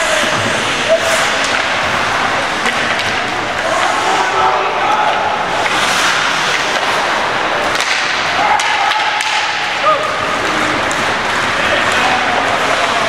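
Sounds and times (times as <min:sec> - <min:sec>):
sticks clacking on puck: 0:00.1 - 0:01.8, 0:02.6 - 0:04.3, 0:04.9 - 0:13.0
people shouting: 0:03.6 - 0:05.6, 0:08.0 - 0:13.0
skate blades scraping ice: 0:05.5 - 0:13.0.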